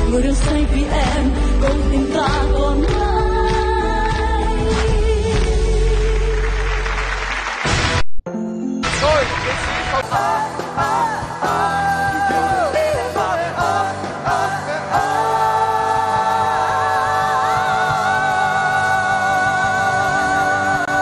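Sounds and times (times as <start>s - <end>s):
backing music: 0.0s - 21.0s
man singing: 11.6s - 15.0s.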